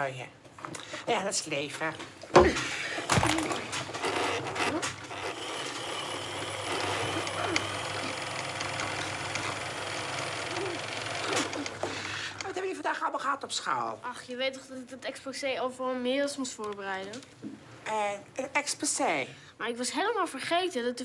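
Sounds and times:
electric sewing machine running: 0:03.0 - 0:12.5.

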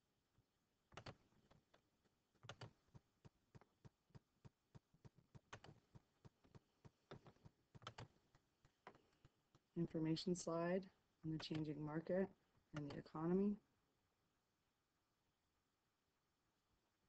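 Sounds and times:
computer mouse clicking: 0:05.1 - 0:05.8, 0:06.5 - 0:08.1, 0:11.4 - 0:11.8, 0:12.8 - 0:13.0.

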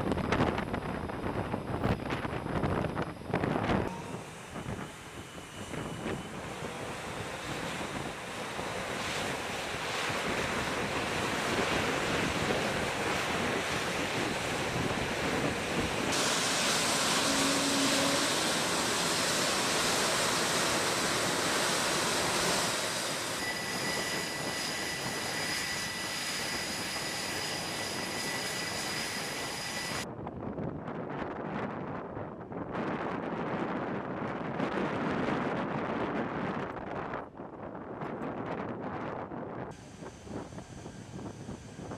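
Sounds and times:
jet engine roar: 0:00.0 - 0:30.1, 0:39.7 - 0:41.9
steady high whine: 0:00.0 - 0:30.1, 0:39.7 - 0:41.9
rushing wind: 0:00.0 - 0:41.9.

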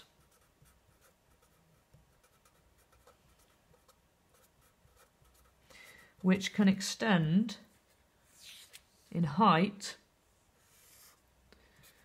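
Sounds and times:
marker pen scratching on paper: 0:00.0 - 0:05.6, 0:10.6 - 0:11.3.

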